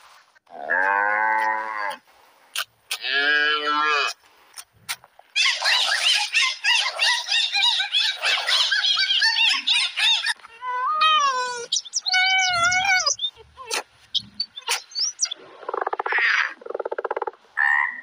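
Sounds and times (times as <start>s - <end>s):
dolphin whistles: 11.5s - 13.3s
frog croaking: 14.2s - 18.0s.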